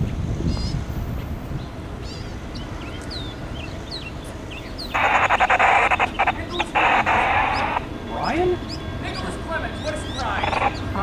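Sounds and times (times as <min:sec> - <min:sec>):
wind rumble on microphone: 0:00.0 - 0:09.2
songbirds chirping: 0:00.0 - 0:11.0
loud harsh buzzing: 0:04.9 - 0:07.9, 0:10.4 - 0:10.8.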